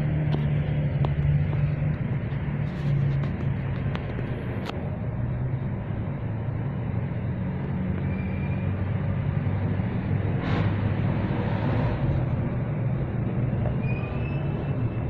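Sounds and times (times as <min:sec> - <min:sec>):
engine droning: 0:00.0 - 0:15.0.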